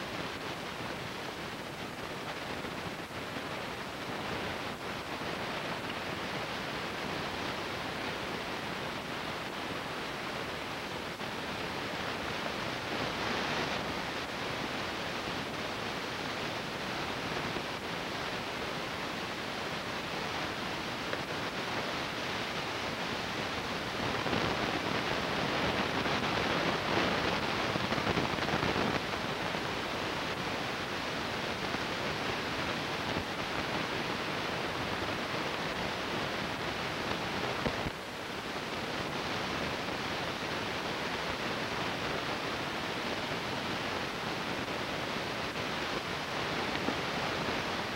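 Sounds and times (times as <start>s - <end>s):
steady hiss: 0.0s - 47.9s.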